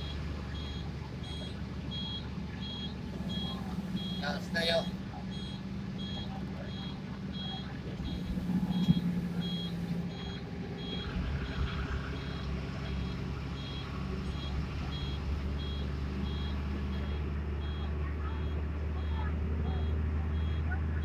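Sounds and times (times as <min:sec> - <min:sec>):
electronic warning beeper: 0:00.0 - 0:11.6
bus engine droning: 0:00.0 - 0:21.0.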